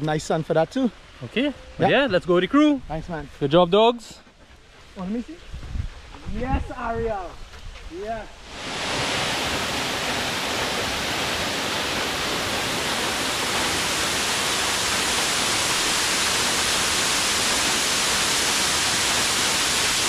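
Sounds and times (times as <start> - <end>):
waterfall rushing: 8.4 - 20.0.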